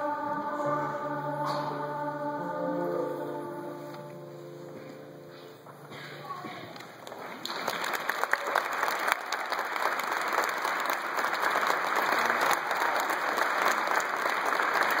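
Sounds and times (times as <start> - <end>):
audience applause: 6.8 - 15.0.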